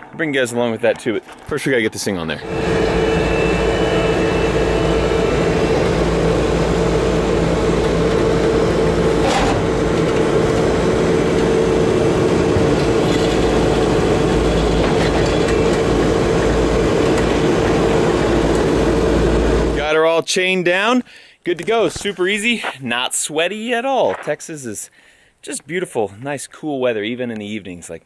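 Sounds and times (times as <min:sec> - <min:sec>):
tracks clattering: 0:00.0 - 0:19.8
diesel engine running: 0:02.4 - 0:19.8.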